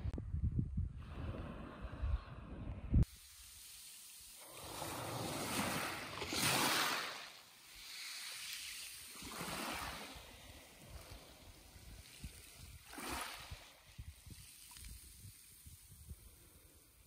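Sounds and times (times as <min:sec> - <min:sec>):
waves washing on shingle beach: 0:03.1 - 0:17.0.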